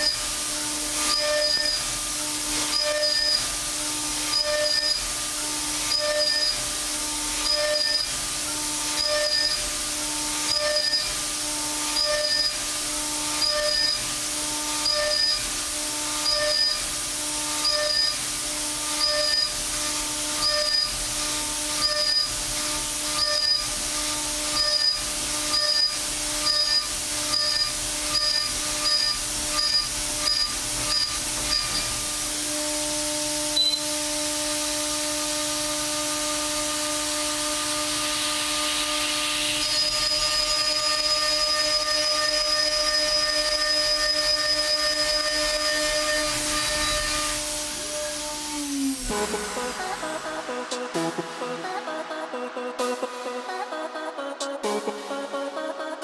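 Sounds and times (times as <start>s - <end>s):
milling machine spindle whine: 0.0s - 51.4s
hissing metal cutting bursts: 37.9s - 51.9s.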